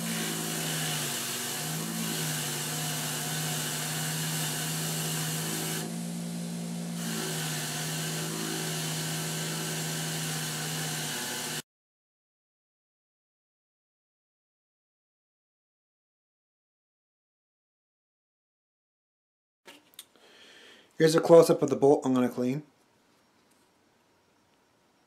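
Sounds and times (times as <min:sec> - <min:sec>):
bench grinder motor hum: 0:00.0 - 0:11.6.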